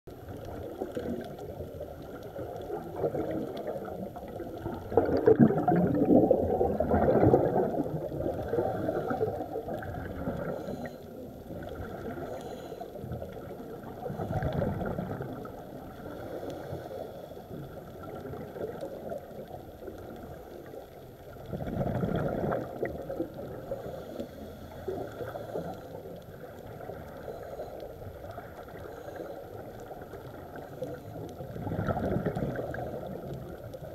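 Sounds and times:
dull underwater rush: 0.1s - 33.9s
regulator exhaust bubbles: 4.5s - 8.6s.

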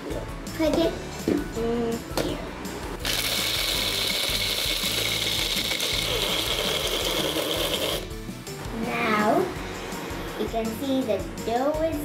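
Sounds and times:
blender grinding with high whine: 3.0s - 8.1s.

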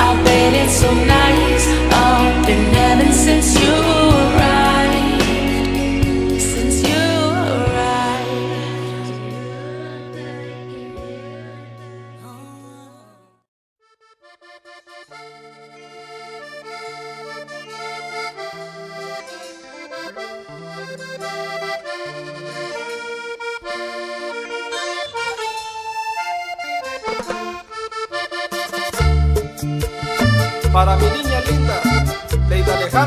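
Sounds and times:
accordion melody: 0.0s - 13.2s, 13.8s - 33.0s.

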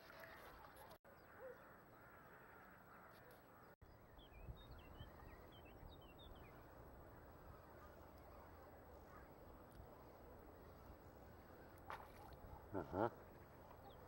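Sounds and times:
small birds chirping: 3.2s - 14.0s.

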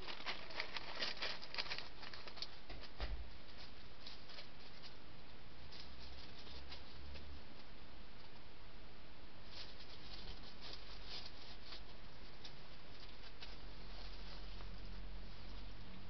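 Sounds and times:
leaf litter rustling and crackling: 0.0s - 5.0s, 9.5s - 15.7s.

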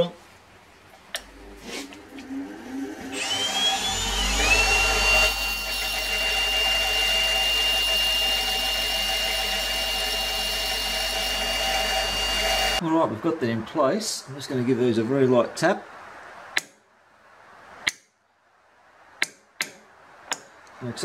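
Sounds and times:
low motor hum: 1.1s - 12.8s
bench grinder whine: 1.2s - 12.8s
cordless drill whirring: 1.2s - 12.8s.

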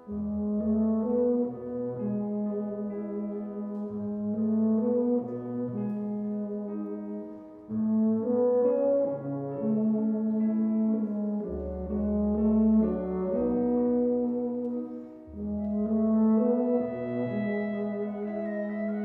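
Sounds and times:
wind band playing: 0.1s - 19.0s
low bass notes: 7.7s - 19.0s.

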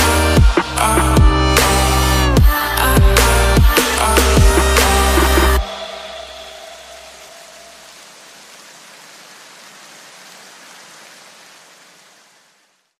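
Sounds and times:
steady hiss: 1.6s - 13.0s.

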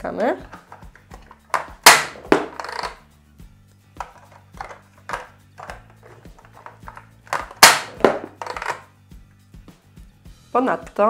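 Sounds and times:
quiet background music: 0.0s - 11.0s
plastic cans clattering on table: 0.2s - 3.0s, 4.0s - 8.9s
plastic toy clicks and knocks: 0.2s - 3.0s, 4.0s - 8.8s.

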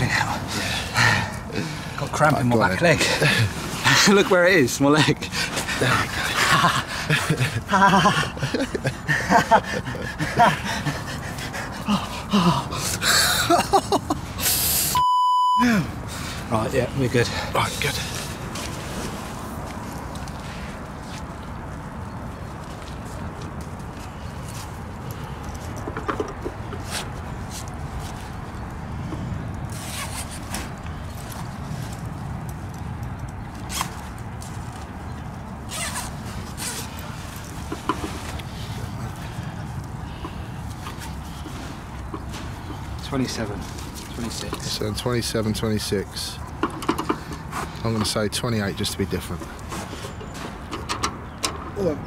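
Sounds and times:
man grunting and gasping: 11.7s - 13.5s, 15.6s - 16.0s
zip-like rasps: 29.7s - 30.7s, 33.7s - 34.0s, 35.7s - 37.2s.

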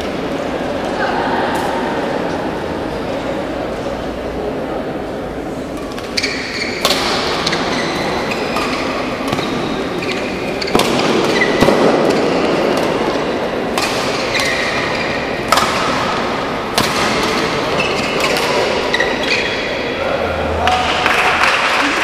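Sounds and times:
crowd noise in echoing hall: 0.0s - 22.0s
racket hitting shuttlecock: 5.8s - 19.7s
shoes squeaking on court: 6.0s - 12.6s, 17.3s - 19.9s.

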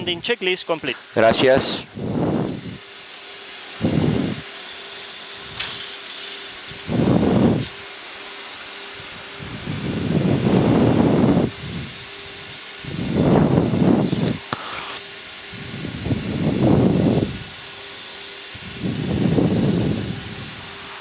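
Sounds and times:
rushing hiss of ventilation: 0.0s - 21.0s
low rumbling swells: 12.8s - 15.0s
sharp click: 14.1s - 15.0s.

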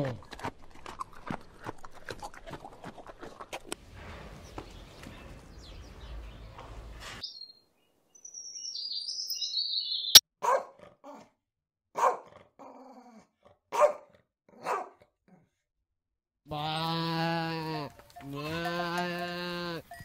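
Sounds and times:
dog barking: 10.4s - 11.3s, 12.0s - 12.4s, 13.7s - 15.4s.

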